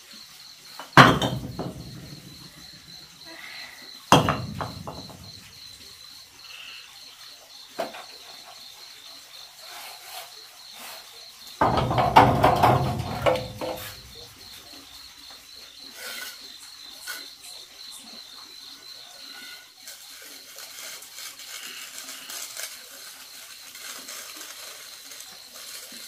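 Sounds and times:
crickets chirping: 0.0 - 26.0
masonry scraping and clattering: 0.7 - 3.2, 4.0 - 6.0, 9.6 - 15.1, 15.8 - 17.6
brick knocking on concrete: 0.8 - 2.7, 4.1 - 5.6, 11.6 - 14.4.

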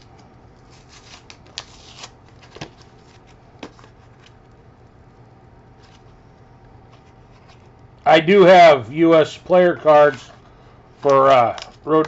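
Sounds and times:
low steady hum: 0.0 - 12.0
trading cards rustling: 0.6 - 4.6.

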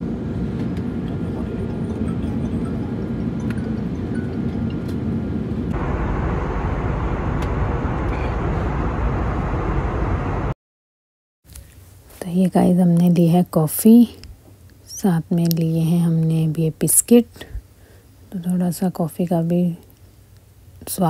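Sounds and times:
jet airliner engine roar: 0.0 - 10.6.

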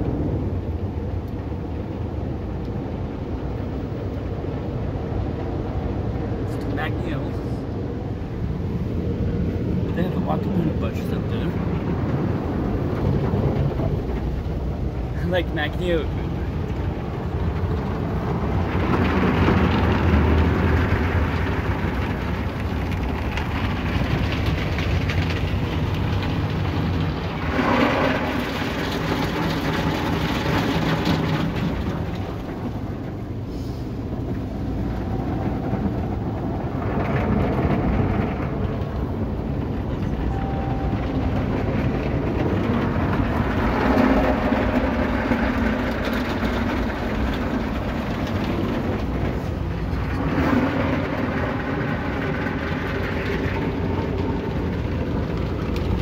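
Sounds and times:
machinery rumble: 0.0 - 56.0
car wash brushes scrubbing: 24.7 - 33.1.

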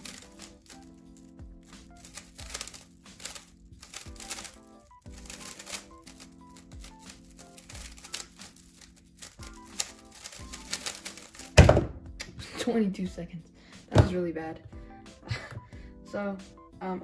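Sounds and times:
puzzle cube clicking: 0.0 - 11.6
background music with steady beat: 0.0 - 17.0.

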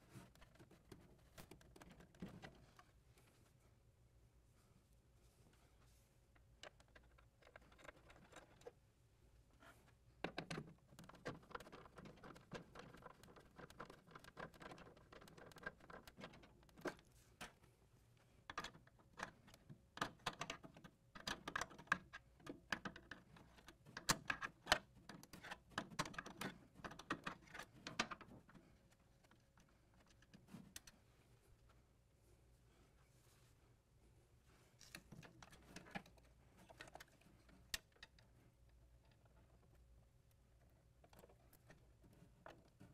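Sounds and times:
hands handling cables and hardware: 0.0 - 3.7, 5.3 - 8.8, 9.5 - 42.9.

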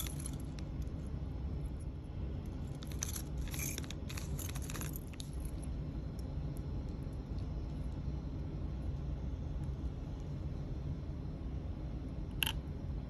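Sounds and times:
metal charms clinking: 0.0 - 0.6, 2.7 - 5.5
steady low hum: 0.0 - 13.0
plastic bag crinkling: 2.7 - 5.5.

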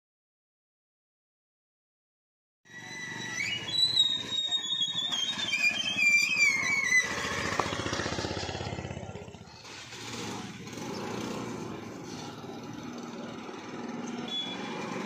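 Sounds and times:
high wavering squeal: 2.7 - 7.8
motorcycle engine idling: 6.6 - 15.0.

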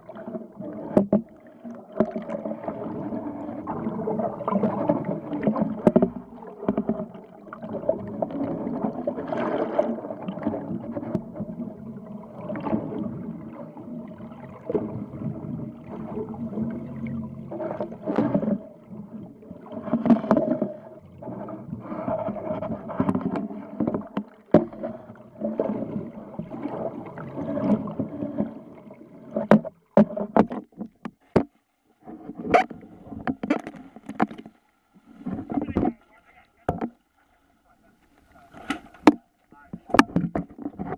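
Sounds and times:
water rushing and bubbling: 0.0 - 31.1, 32.0 - 36.9
muffled underwater boat engine: 0.0 - 40.9
knocks and splashes: 1.9 - 2.8, 3.7 - 11.6, 17.8 - 20.8, 22.5 - 28.7, 29.3 - 34.6, 36.6 - 37.0, 38.5 - 40.9.

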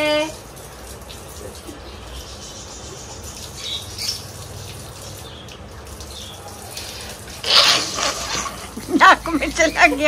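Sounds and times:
tap water running: 0.0 - 10.0
man splashing water on face: 3.2 - 9.7
short high squeaks: 7.4 - 8.6.

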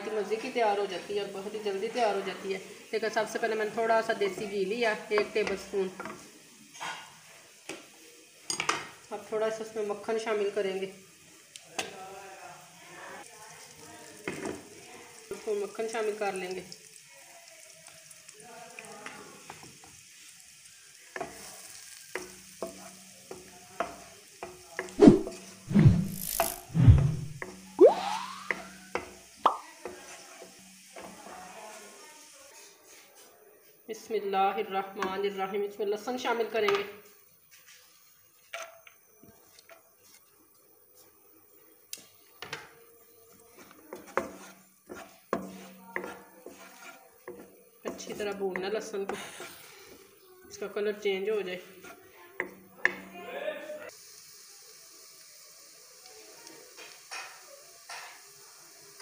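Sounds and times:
butter sizzling in a pan: 0.0 - 26.8, 27.4 - 33.2, 33.9 - 59.0
spatula stirring: 43.3 - 50.0, 51.6 - 52.6.

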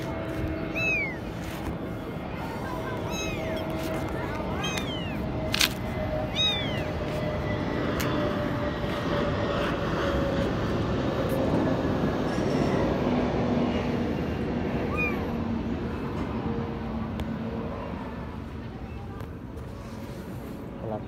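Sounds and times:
kitten meowing: 0.7 - 1.3, 2.8 - 5.2, 6.3 - 7.0, 14.8 - 15.4.

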